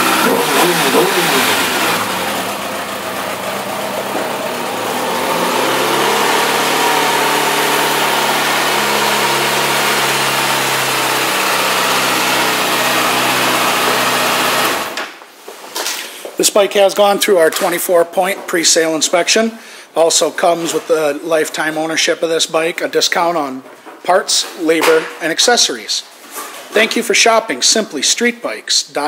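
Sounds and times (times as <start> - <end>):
motorcycle engine revving and idling: 0.0 - 15.0.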